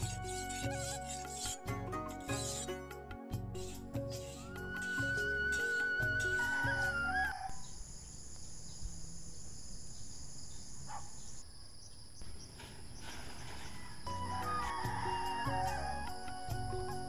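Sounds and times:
insects droning: 3.7s - 17.0s.

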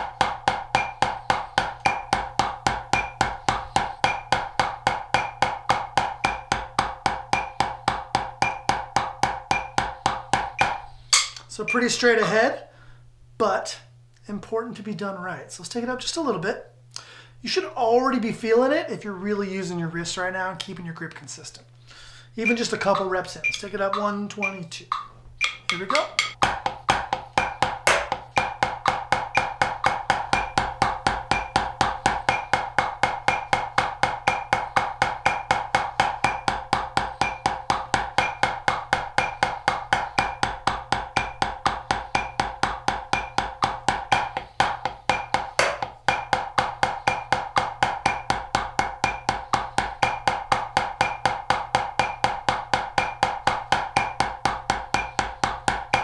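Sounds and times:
drumsticks striking practice pad: 0.0s - 12.4s, 22.4s - 56.0s
metronome clicking: 0.7s - 1.2s, 8.4s - 8.8s, 10.5s - 12.3s, 22.4s - 26.4s, 27.4s - 30.7s.

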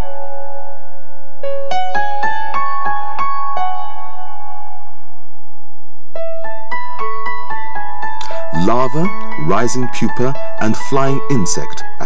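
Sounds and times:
keyboard piano notes: 6.1s - 12.0s.

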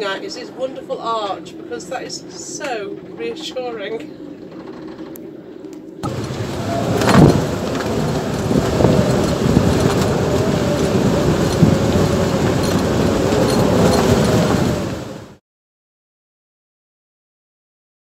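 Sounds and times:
wind roaring and buffeting microphone: 6.0s - 15.4s.

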